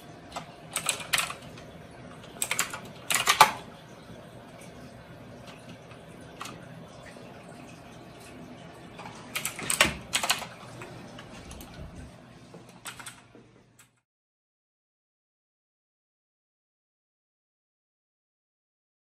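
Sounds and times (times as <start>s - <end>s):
mechanical keyboard typing: 0.3s - 3.7s, 9.1s - 10.8s, 12.8s - 14.0s.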